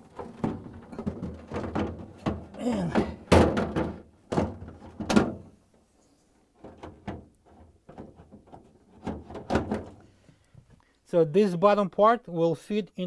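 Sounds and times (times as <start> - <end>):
plastic basket knocking on rails: 0.2 - 5.4.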